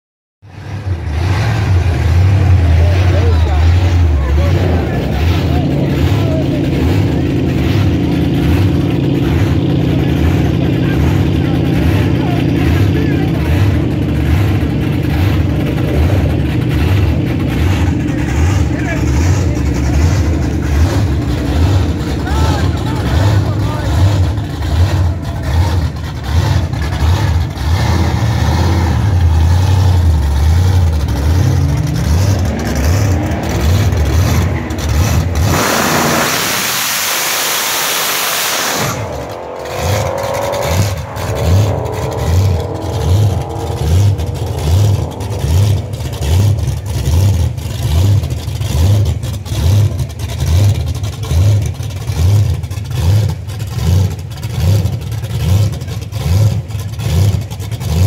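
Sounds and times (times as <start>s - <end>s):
car engine revving: 0.4s - 58.0s.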